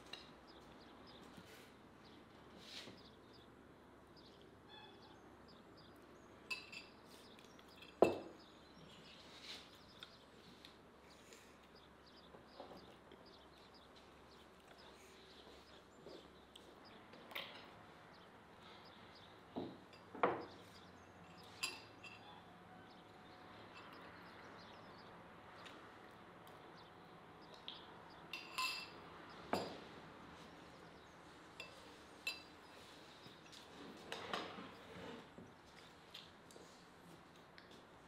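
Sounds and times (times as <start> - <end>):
cutlery and dishes clinking: 6.5 - 7.0, 21.3 - 22.4, 28.4 - 29.0.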